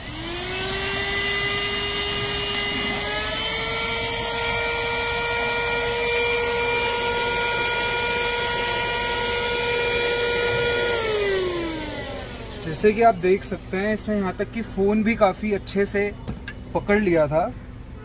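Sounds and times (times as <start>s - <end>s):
handheld vacuum motor whine: 0.0s - 13.7s.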